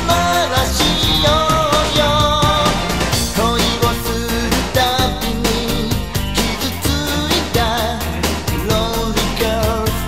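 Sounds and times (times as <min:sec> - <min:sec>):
pop-rock song: 0:00.0 - 0:10.0.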